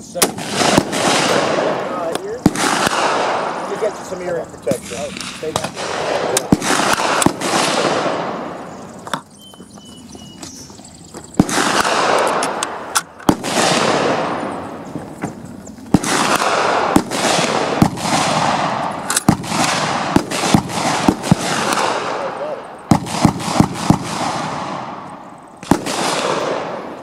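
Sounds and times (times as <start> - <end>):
rifle shots with echo: 0.1 - 8.9, 11.4 - 14.9, 15.9 - 27.0
rifle bolt clicks: 19.0 - 19.3.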